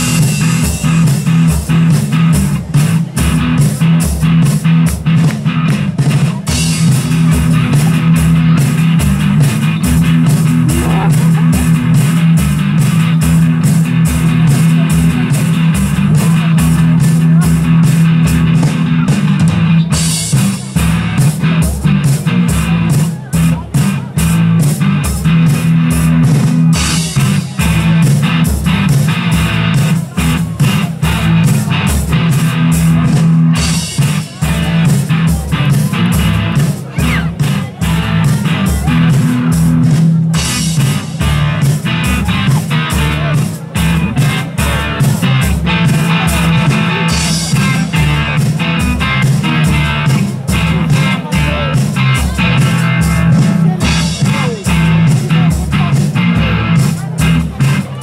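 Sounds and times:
bass guitar: 0.0s - 58.0s
drum kit beat: 0.0s - 58.0s
electric guitars: 0.0s - 58.0s.

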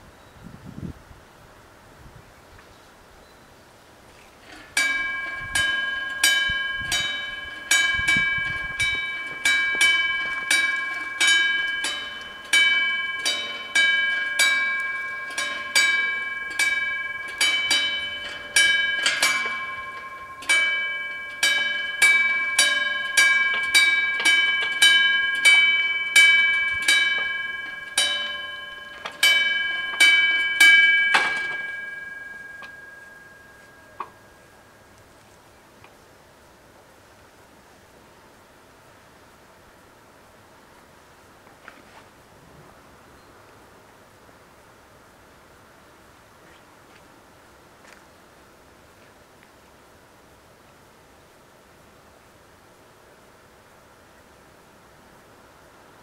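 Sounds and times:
level-crossing warning bell: 4.8s - 35.0s.

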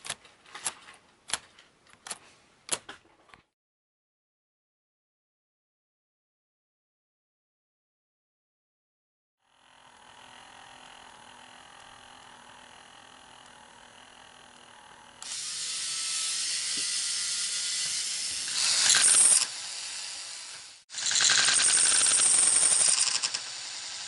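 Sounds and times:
toy coaster launch motor running: 9.4s - 24.0s.

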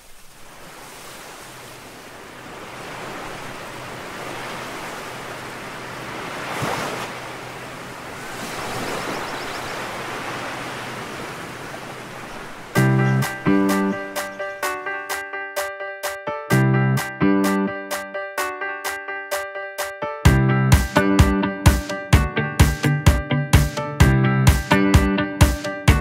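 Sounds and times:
waves breaking: 0.0s - 14.8s
ocean surf rushing: 0.0s - 15.1s.

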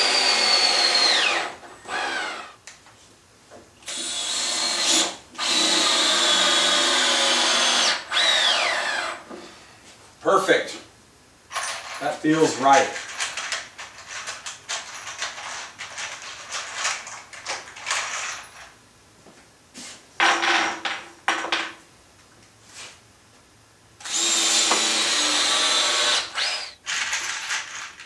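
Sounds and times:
cordless drill driving screws: 0.0s - 2.5s, 3.8s - 9.2s, 24.0s - 27.7s.

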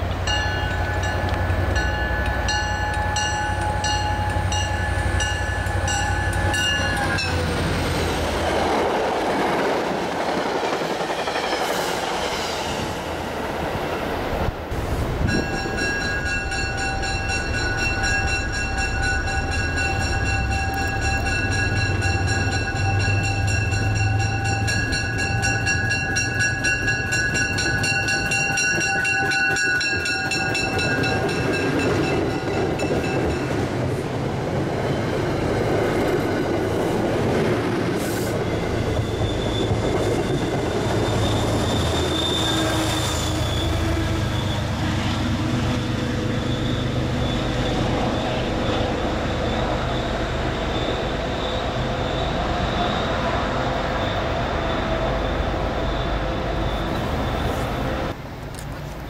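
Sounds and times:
train coaches rumbling and clicking: 0.0s - 59.0s
train bell ringing rapidly: 0.2s - 7.6s, 15.2s - 33.8s
high wheel squeal: 37.9s - 58.2s.

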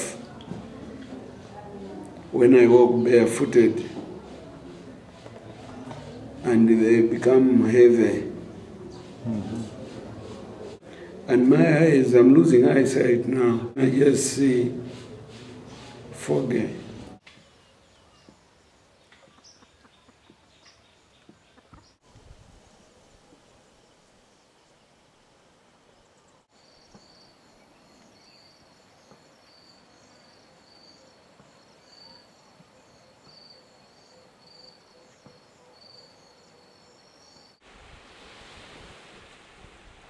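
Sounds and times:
wind noise on microphone: 22.0s - 22.8s, 37.6s - 40.0s.

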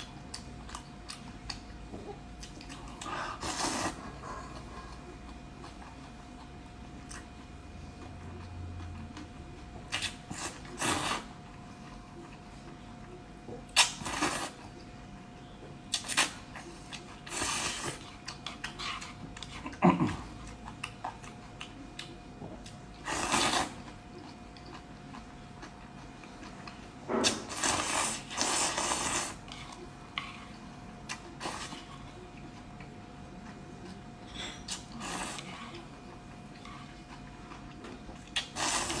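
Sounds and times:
person slurping noodles: 3.0s - 4.2s, 10.3s - 11.3s, 23.0s - 23.8s, 27.2s - 29.8s, 38.4s - 39.0s.

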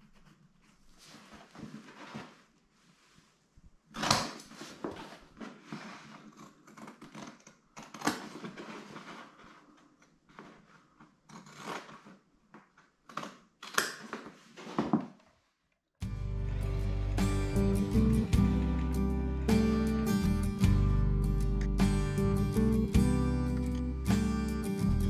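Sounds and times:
acoustic guitar music: 16.0s - 25.0s.

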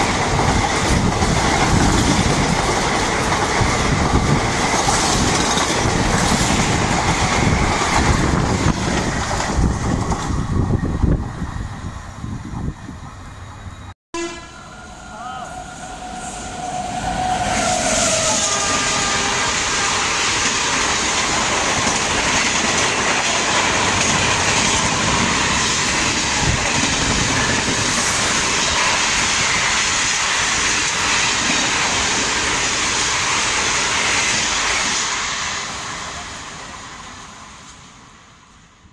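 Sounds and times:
train wheels on rails: 0.0s - 38.9s
train horn: 14.1s - 20.5s.

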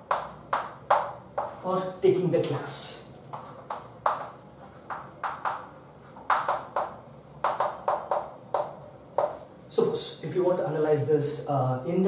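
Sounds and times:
chalk tapping and scratching: 0.0s - 1.7s, 3.3s - 9.5s.

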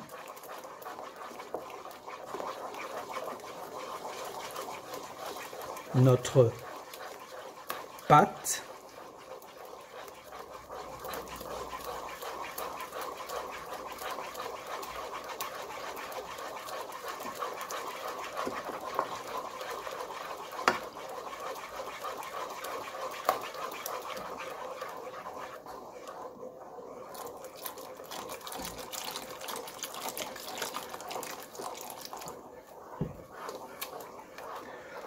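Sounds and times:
whisk swishing batter: 0.0s - 35.0s
whisk ticking against pot: 0.0s - 35.0s.

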